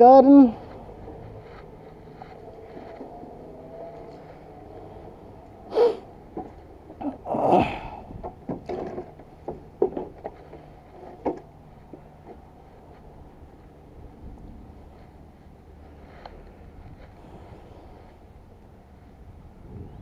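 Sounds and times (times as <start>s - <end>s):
equipment knocking and clattering: 6.3s - 7.2s, 8.0s - 12.5s.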